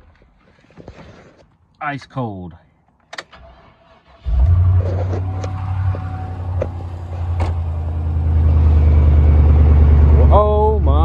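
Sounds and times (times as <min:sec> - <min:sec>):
truck engine starting and idling: 0:03.2 - 0:11.0.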